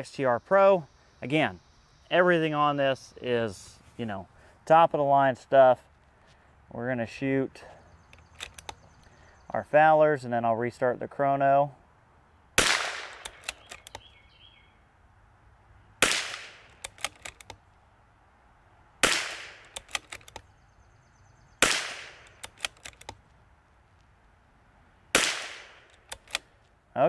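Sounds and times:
rifle bolt clicks: 8.1s - 8.8s, 13.0s - 14.1s, 16.3s - 17.6s, 19.2s - 20.5s, 21.6s - 23.3s, 25.2s - 26.5s
rifle shots: 12.6s - 13.9s, 16.0s - 17.4s, 19.0s - 20.3s, 21.6s - 22.9s, 25.1s - 26.4s.

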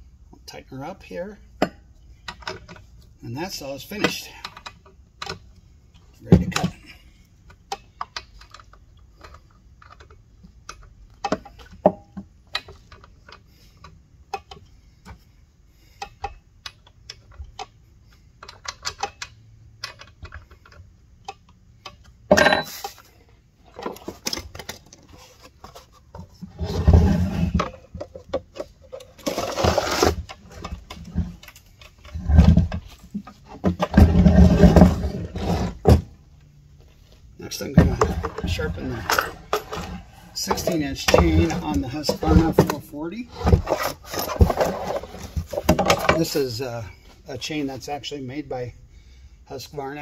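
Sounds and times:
chainsaw scraping on bench: 26.5s - 27.9s, 29.0s - 31.4s, 33.6s - 36.1s, 37.8s - 45.7s.

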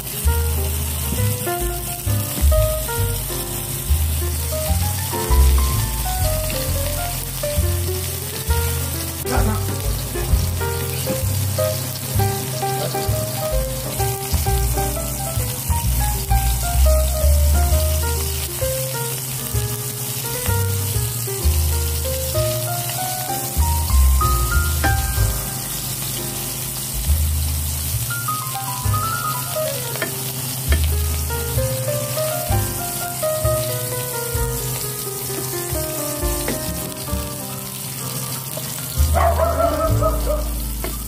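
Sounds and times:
food sizzling in oil: 0.0s - 41.0s
background music with pulsing bass: 39.0s - 41.0s.

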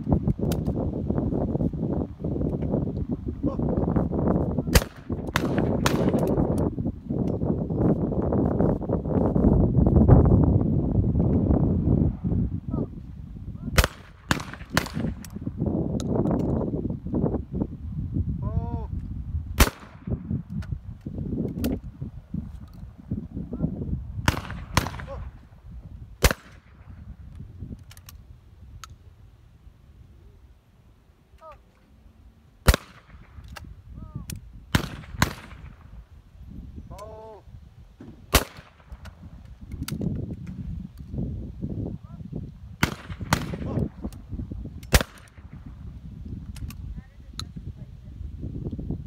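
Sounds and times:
shotgun shots with echo: 4.7s - 6.2s, 13.8s - 15.2s, 19.6s - 20.1s, 24.2s - 25.2s, 26.2s - 26.8s, 32.6s - 33.3s, 34.7s - 35.8s, 38.3s - 39.0s, 42.8s - 43.8s, 44.9s - 45.6s.

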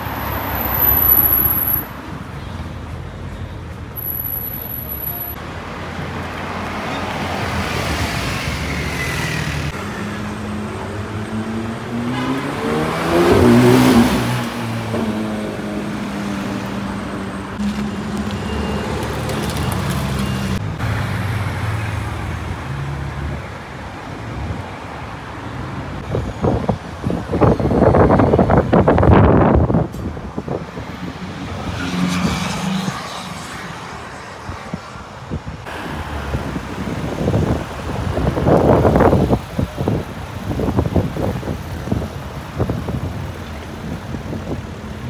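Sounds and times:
street traffic engines: 0.0s - 45.0s.

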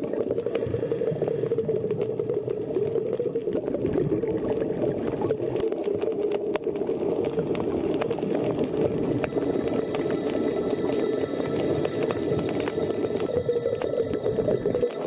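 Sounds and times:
muffled underwater rumble: 0.0s - 15.0s
faint clicks: 5.5s - 15.0s.

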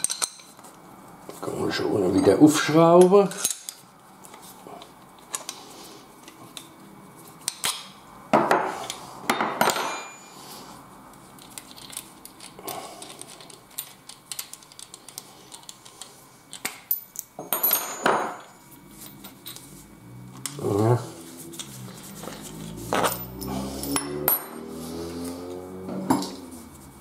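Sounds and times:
metal parts clinking on workbench: 0.0s - 0.5s, 16.5s - 18.5s, 22.9s - 24.5s
metal tools clattering: 0.0s - 0.5s, 16.9s - 18.6s.

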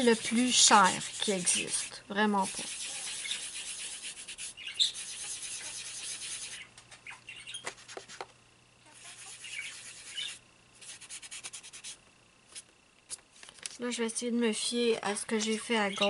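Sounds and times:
pastel rubbing on paper: 0.0s - 6.7s, 7.6s - 8.3s, 8.9s - 12.0s.

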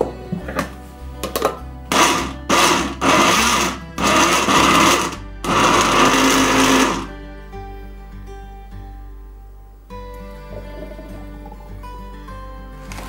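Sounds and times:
blender pulsing: 1.9s - 7.1s.

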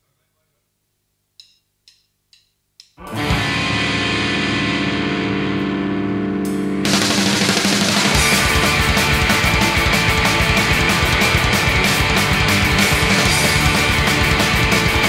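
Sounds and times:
drumstick clicks: 1.4s - 3.0s
drums: 3.0s - 5.0s, 6.5s - 15.0s
distorted electric guitar chord: 3.0s - 15.0s.

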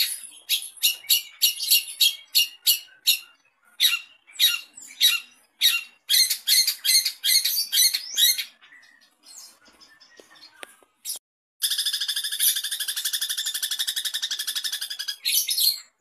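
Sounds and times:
shrike harsh chattering calls: 11.6s - 15.8s.

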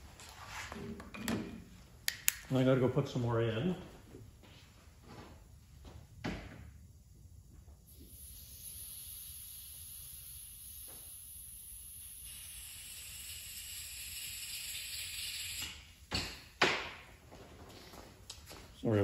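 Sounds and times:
gas hissing: 7.8s - 16.1s.

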